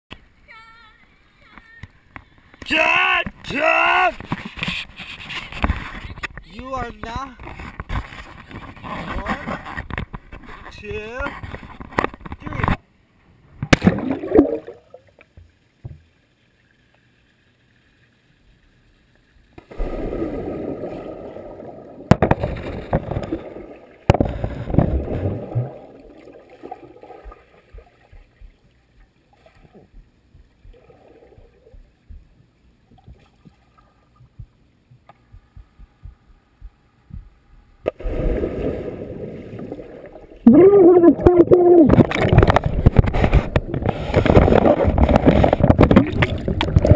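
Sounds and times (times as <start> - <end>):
underwater bubbling and churning: 12.9 - 40.5, 41.1 - 46.9.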